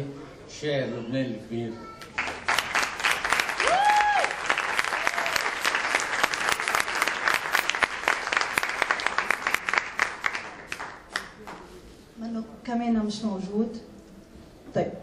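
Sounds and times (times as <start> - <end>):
audience applauding: 2.1 - 11.6.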